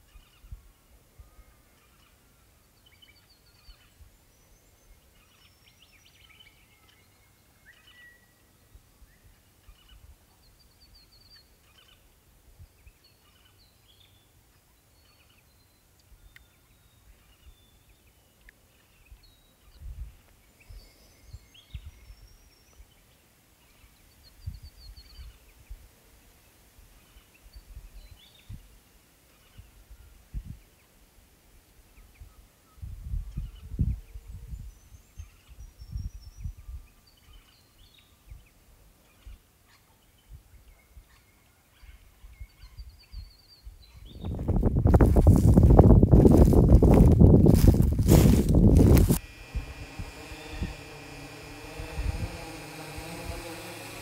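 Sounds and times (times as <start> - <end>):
birds chirping and trilling: 0.0 - 25.6, 31.9 - 54.0
wind rumble on microphone: 19.8 - 20.2, 32.2 - 36.9, 42.2 - 53.4.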